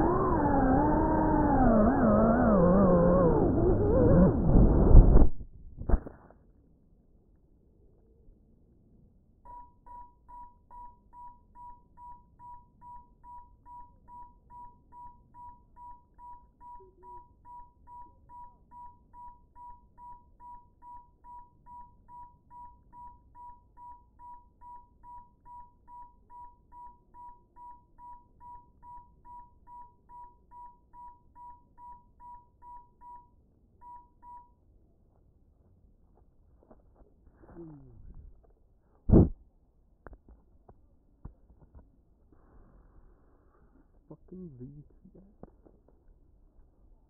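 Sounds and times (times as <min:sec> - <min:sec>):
drone beeper beeping: 0:00.0 - 0:05.4, 0:12.4 - 0:25.2.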